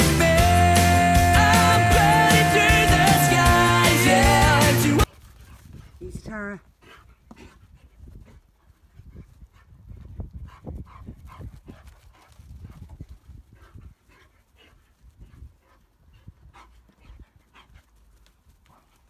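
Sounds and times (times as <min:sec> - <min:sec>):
dog panting: 0:05.0 - 0:19.0.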